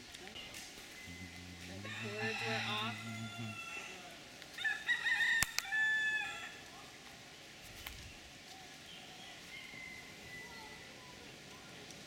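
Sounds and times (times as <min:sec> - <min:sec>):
rooster crowing: 0:01.1 - 0:06.6, 0:09.4 - 0:10.9
sharp clicks: 0:05.4 - 0:05.7.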